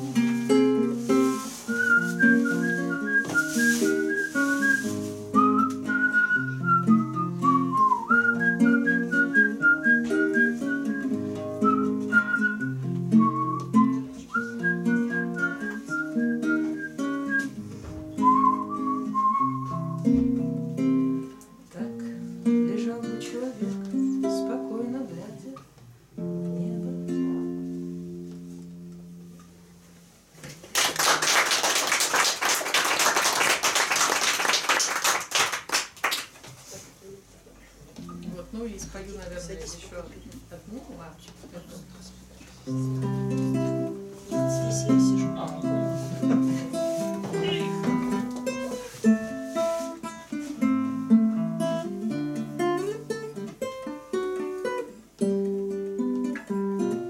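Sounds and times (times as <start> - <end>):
classical guitars chord: 0.0 - 30.1, 37.9 - 57.0
audience applauding: 30.6 - 36.4.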